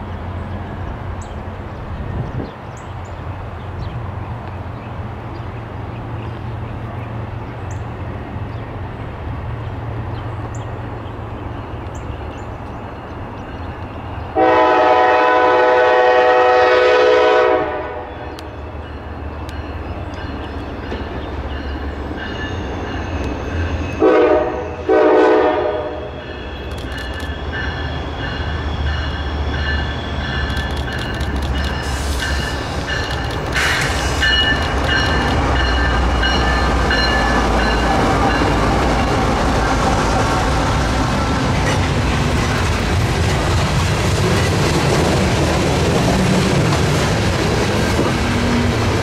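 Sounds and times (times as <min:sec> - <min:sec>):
low rumble of train: 0:00.0 - 0:49.0
locomotive air horn blasts: 0:14.4 - 0:18.3, 0:24.0 - 0:26.6.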